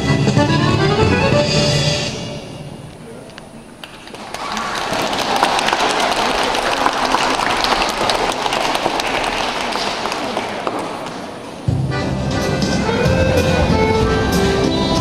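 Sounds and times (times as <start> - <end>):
music: 0.0 - 2.8, 11.7 - 15.0
audience applauding: 3.8 - 11.4.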